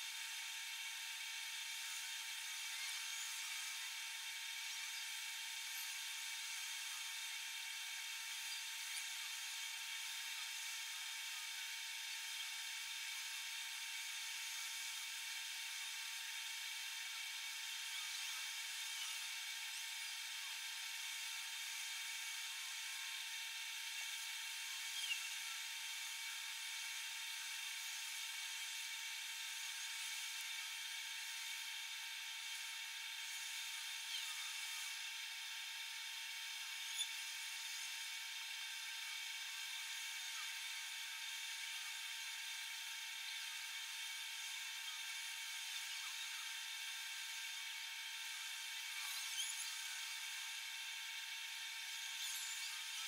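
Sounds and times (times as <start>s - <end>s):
pot boiling with steady hiss: 0.0s - 53.0s.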